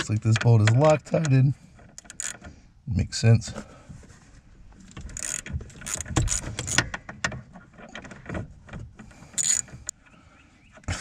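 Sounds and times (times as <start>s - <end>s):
ratchet wrench clicking: 2.0s - 2.4s, 5.2s - 6.8s, 9.4s - 9.6s.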